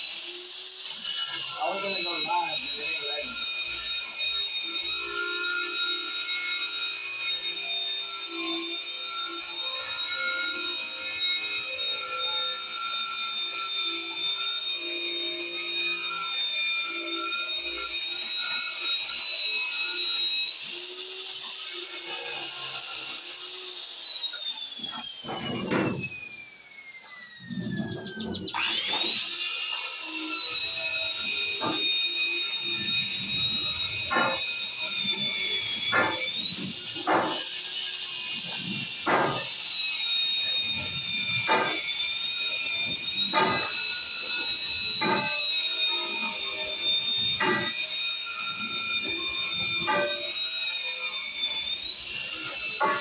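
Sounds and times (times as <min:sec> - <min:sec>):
angle grinder whining: 0:00.0 - 0:53.0
wire wheel scrubbing steel pipe: 0:01.6 - 0:03.3.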